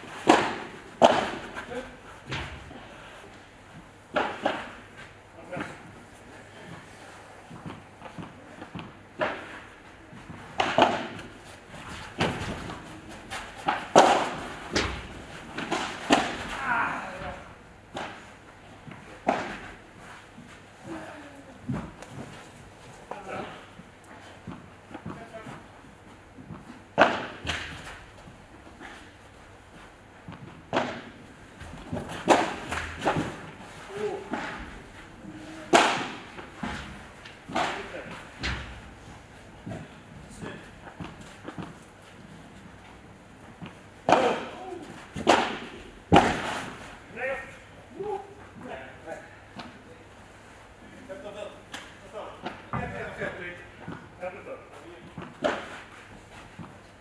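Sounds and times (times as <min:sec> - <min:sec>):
racket striking ball: 0:00.2 - 0:01.5, 0:10.6 - 0:11.3, 0:13.6 - 0:16.6, 0:27.0 - 0:27.8, 0:30.3 - 0:33.5, 0:35.7 - 0:38.8, 0:43.6 - 0:44.5, 0:45.2 - 0:46.8.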